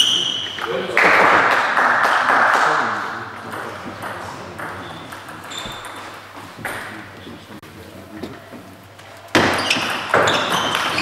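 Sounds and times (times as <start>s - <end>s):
voices: 0.0s - 10.4s
spectators applauding: 0.8s - 3.4s
table tennis ball bouncing: 3.3s - 6.9s, 9.3s - 11.0s.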